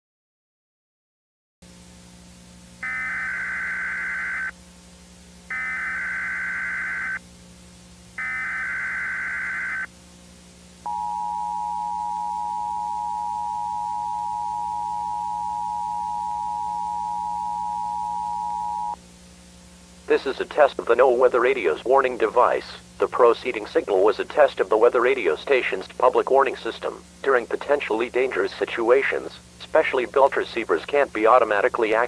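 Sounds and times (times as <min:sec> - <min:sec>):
faint low hum: 0:01.7 - 0:32.0
two-tone attention signal: 0:02.8 - 0:04.5, 0:05.5 - 0:07.2, 0:08.2 - 0:09.9, 0:10.9 - 0:19.0
warbling data tones: 0:02.8 - 0:04.5, 0:05.5 - 0:07.2, 0:08.2 - 0:09.9, 0:10.9 - 0:19.0.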